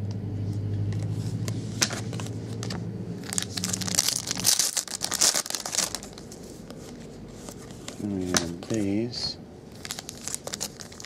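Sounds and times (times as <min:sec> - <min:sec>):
steady low hum: 0:00.0 - 0:11.0
foil wrappers crinkling and tearing: 0:01.9 - 0:08.5, 0:09.7 - 0:11.0.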